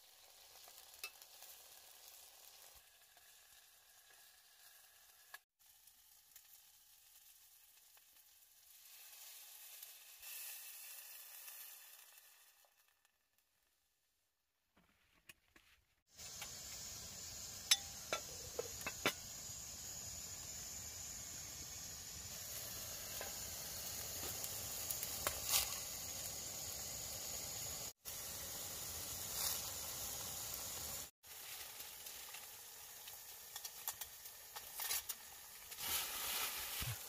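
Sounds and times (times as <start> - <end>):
soup simmering hiss: 0.0 - 12.9, 16.1 - 37.0
metal spoon clinking on pot: 17.7 - 19.2.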